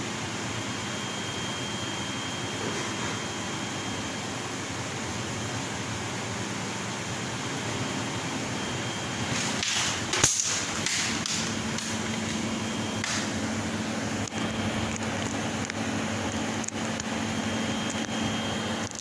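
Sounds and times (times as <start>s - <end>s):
steady low hum: 0.0s - 19.0s
laser cutting machine rushing: 8.2s - 19.0s.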